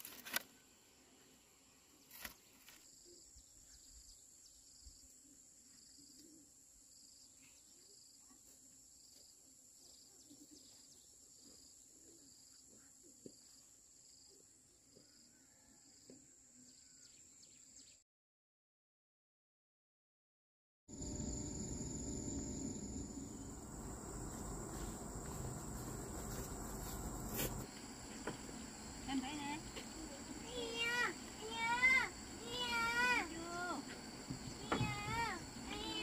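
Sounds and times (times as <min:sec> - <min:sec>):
insect chorus drone: 0:20.9 - 0:36.0
repeating insect chirp: 0:20.9 - 0:36.0.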